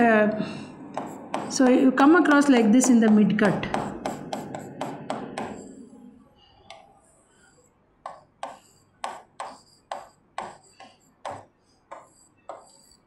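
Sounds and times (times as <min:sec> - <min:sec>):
pen tapping strokes: 0:00.0 - 0:05.9, 0:06.6 - 0:13.0
pen scratching: 0:00.9 - 0:01.9, 0:02.8 - 0:05.9, 0:06.7 - 0:13.0.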